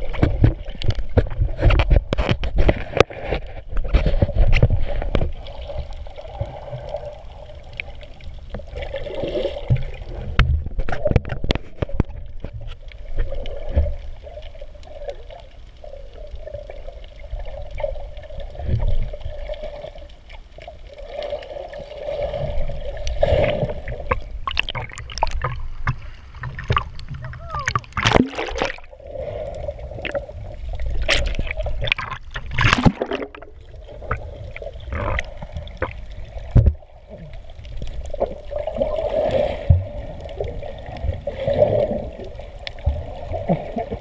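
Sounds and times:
muffled underwater sloshing: 0.0s - 44.0s.

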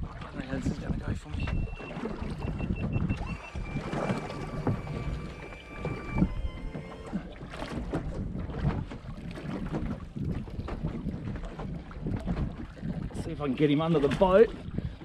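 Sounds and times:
water washing around boat: 0.0s - 15.0s
fishing reel drag whining: 1.6s - 7.3s.

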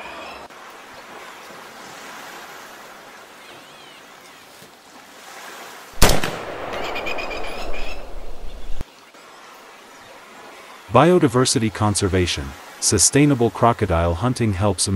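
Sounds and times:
rifle shot: 6.0s - 8.5s
faint bird chirps: 6.8s - 8.8s.

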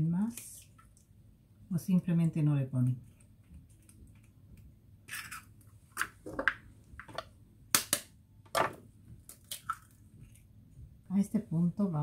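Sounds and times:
eggshells cracking: 9.2s - 10.0s.

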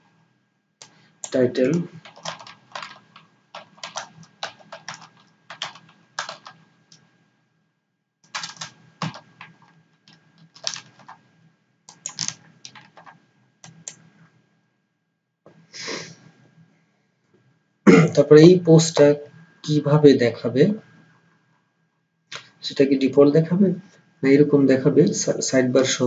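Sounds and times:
computer keyboard typing: 0.8s - 7.1s, 8.2s - 11.2s, 11.9s - 14.0s.

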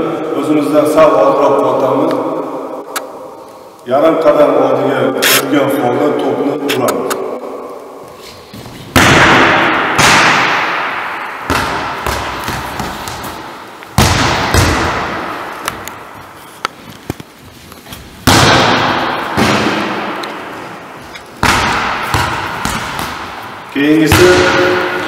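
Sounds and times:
hand smacking volleyball: 21.4s - 23.4s.

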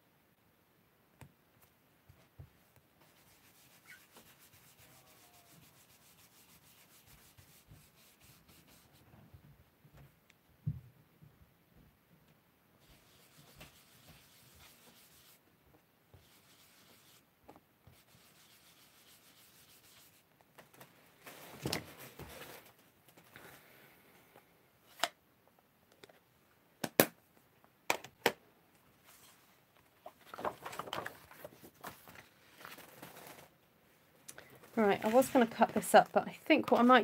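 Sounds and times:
brush rubbing on cardstock: 3.0s - 9.0s, 12.8s - 15.4s, 16.2s - 20.3s
cardstock rustling: 30.0s - 33.5s, 34.6s - 37.0s.

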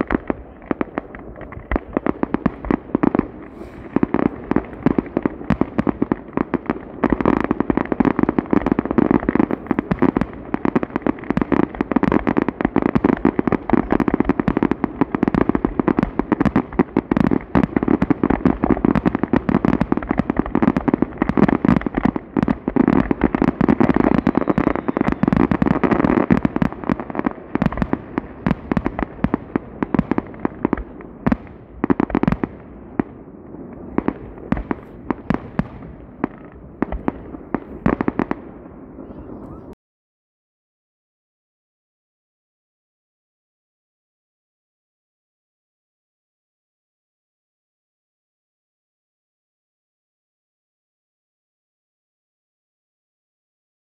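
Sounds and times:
fireworks bangs and crackles: 0.0s - 39.8s.

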